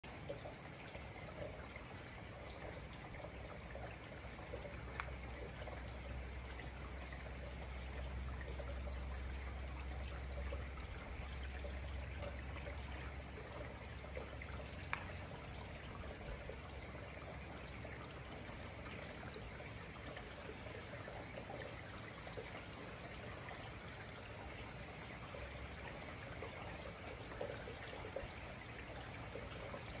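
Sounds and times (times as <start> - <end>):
drops ticking: 11.0 - 16.5.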